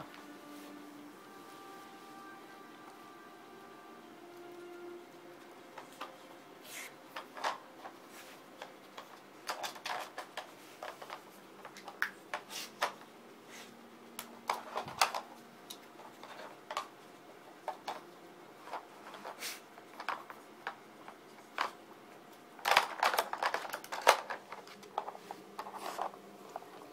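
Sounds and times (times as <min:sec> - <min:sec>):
puzzle toy pieces clattering: 0:22.6 - 0:25.1.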